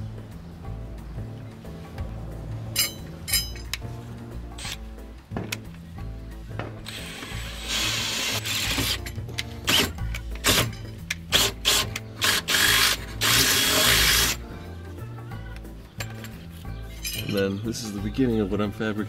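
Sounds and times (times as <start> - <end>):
background music with steady beat: 0.0 - 19.0
power drill boring: 6.9 - 9.0, 11.3 - 14.4.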